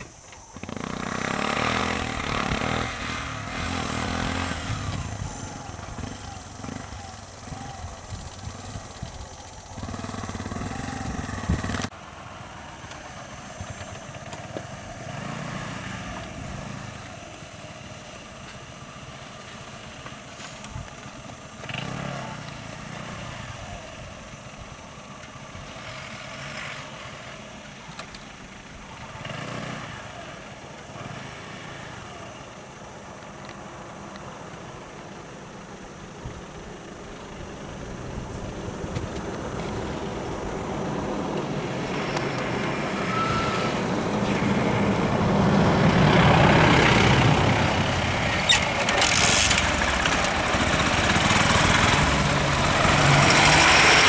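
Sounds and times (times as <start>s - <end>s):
small three-wheeler engine running: 0.0s - 54.0s
bus engine idling: 32.1s - 54.0s.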